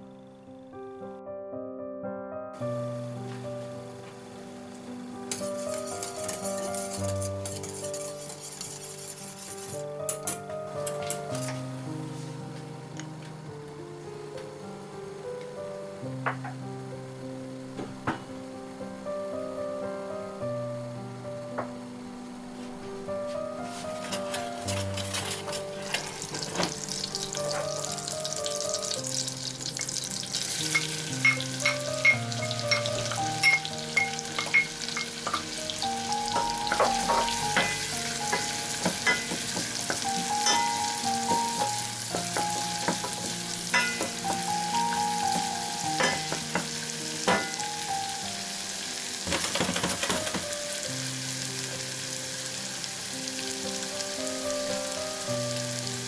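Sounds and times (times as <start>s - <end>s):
slow background music: 0.0s - 56.0s
onion sizzling in butter: 4.2s - 10.0s, 23.6s - 56.0s
spatula scraping a pan: 5.3s - 9.9s, 23.7s - 26.5s.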